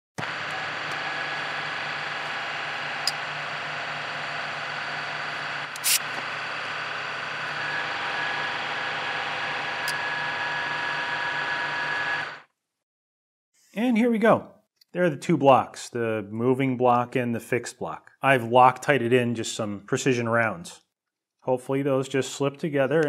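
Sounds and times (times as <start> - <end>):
milling machine running: 0.2 - 12.4
short sharp hiss: 5.8 - 6.0.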